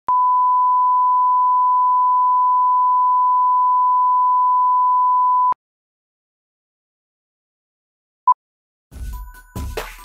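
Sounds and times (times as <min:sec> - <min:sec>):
sine-wave tone: 0:00.1 - 0:05.6.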